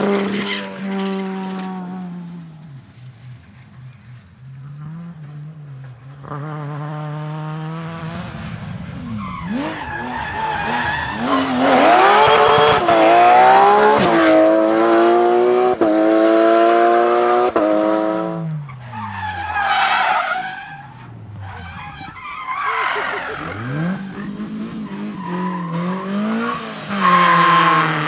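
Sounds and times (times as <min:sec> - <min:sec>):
car engine accelerating and upshifting: 0:00.0 - 0:19.3, 0:22.8 - 0:28.0
tyres scrabbling on asphalt: 0:18.5 - 0:26.0.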